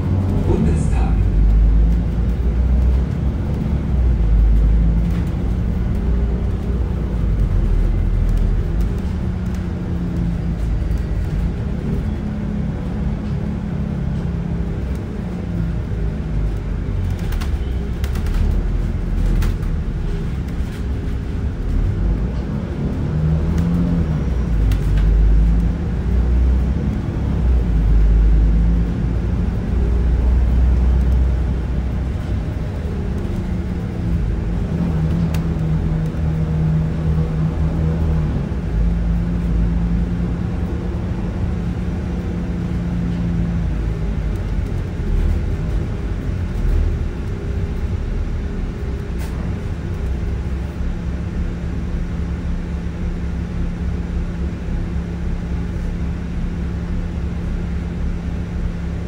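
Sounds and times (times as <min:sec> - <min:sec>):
air-conditioning hum: 0:00.0 - 0:01.8
bus diesel engine rumbling: 0:00.0 - 0:59.0.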